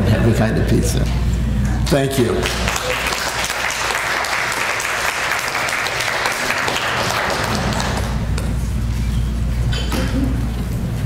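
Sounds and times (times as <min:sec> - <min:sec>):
audience applauding: 0:01.9 - 0:08.2.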